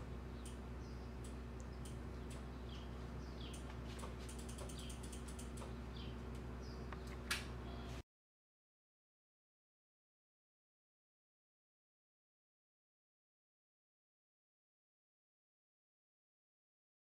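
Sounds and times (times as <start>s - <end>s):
low hum: 0.0s - 8.0s
high bird chirps: 0.3s - 7.9s
light ticks and clicks: 0.4s - 0.6s, 1.2s - 7.5s.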